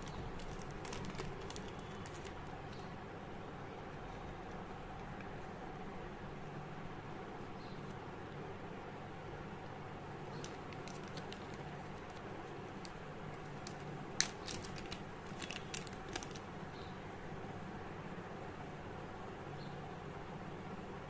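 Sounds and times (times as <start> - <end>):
plastic bag clicks and crackles: 0.0 - 2.9, 10.3 - 16.5
steady background noise: 0.0 - 21.0.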